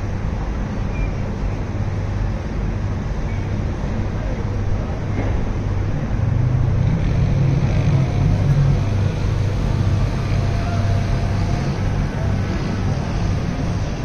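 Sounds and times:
low rumble of engines: 0:00.0 - 0:14.0.

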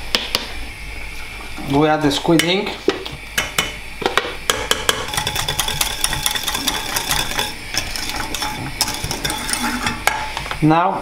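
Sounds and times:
whisk clicking in metal saucepan: 0:04.5 - 0:10.2.

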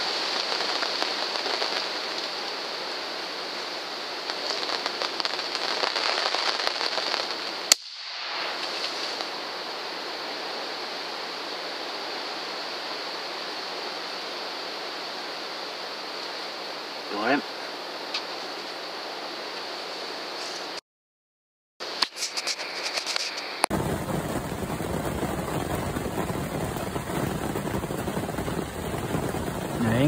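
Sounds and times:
rain pattering: 0:00.0 - 0:07.8, 0:22.8 - 0:30.0
gunshot: 0:07.7 - 0:09.2.

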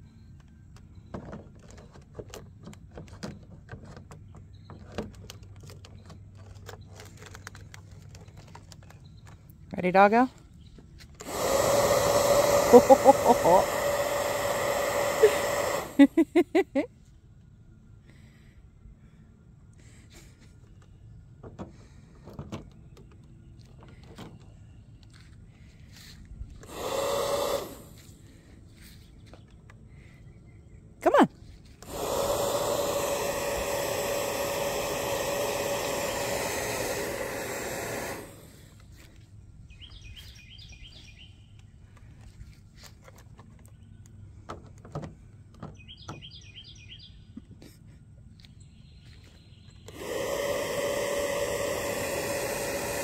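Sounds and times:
toy motor and fan whirring: 0:00.0 - 0:10.0, 0:11.0 - 0:16.9, 0:21.7 - 0:30.1, 0:31.0 - 0:39.2, 0:49.8 - 0:53.0
plastic clicks and knocks: 0:43.0 - 0:46.2.

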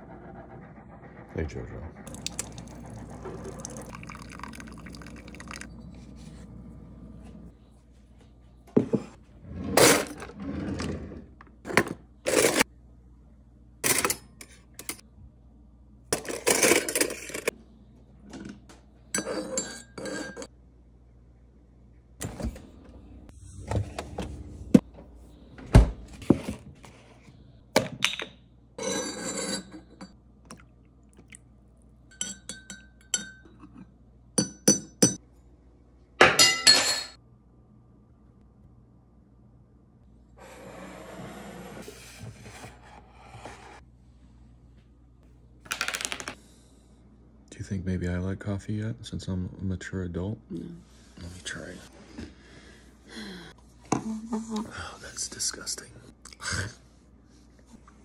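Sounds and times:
spoon clinking against a mug: 0:32.1 - 0:33.8.

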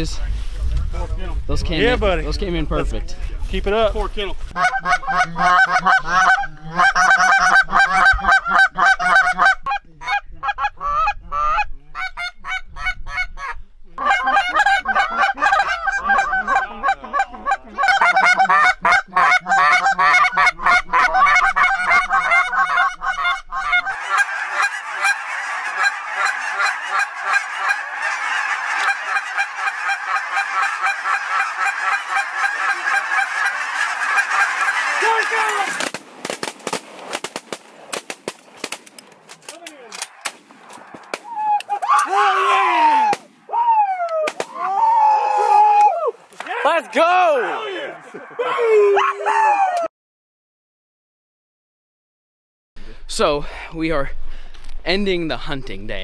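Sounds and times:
flock of geese honking: 0:04.5 - 0:13.3, 0:14.0 - 0:36.0
goose calls honking: 0:14.0 - 0:35.9.

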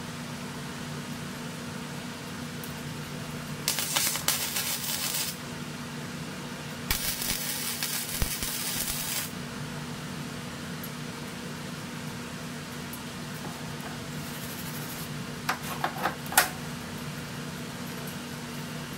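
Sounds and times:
steady low hum: 0:02.1 - 0:17.6
welding arc crackling: 0:03.6 - 0:05.4, 0:06.9 - 0:09.4, 0:14.2 - 0:15.1.

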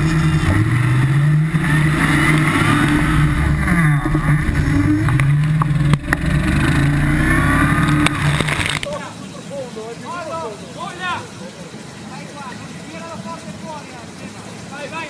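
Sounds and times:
buggy engine revving: 0:00.0 - 0:09.2.

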